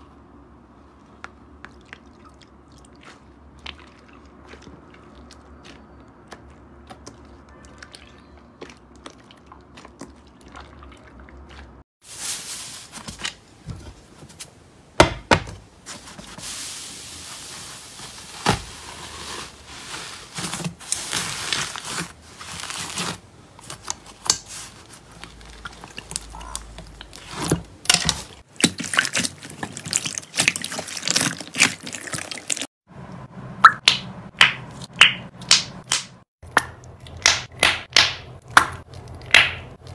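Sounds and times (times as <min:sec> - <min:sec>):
slime squelching and popping: 0:25.2 - 0:32.6.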